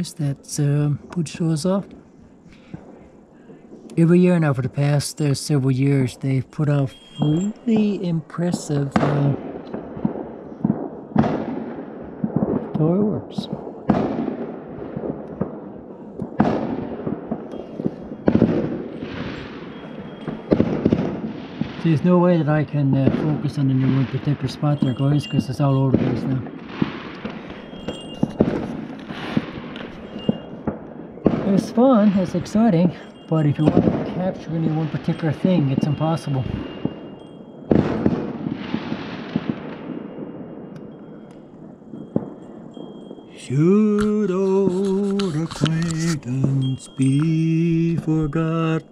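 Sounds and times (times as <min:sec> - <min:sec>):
fireworks booming: 0:00.0 - 0:48.9
fireworks pops and crackles: 0:03.7 - 0:48.9.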